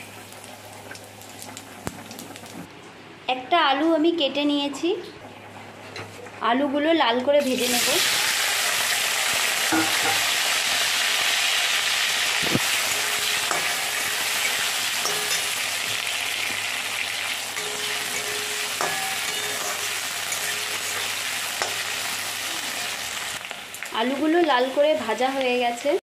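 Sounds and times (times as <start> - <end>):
potatoes sizzling in hot oil: 0.0 - 2.6, 7.4 - 26.0
metal spatula scraping and tapping: 12.5 - 16.6, 17.5 - 21.9.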